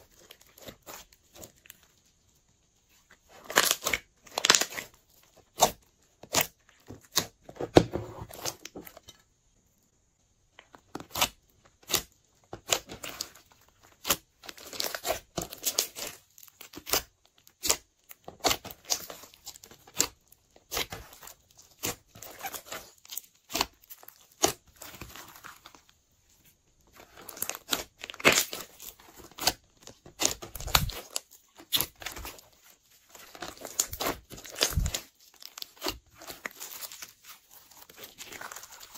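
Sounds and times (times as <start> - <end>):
sticky slime crackles and clicks: 27.0 - 32.5, 33.1 - 38.9.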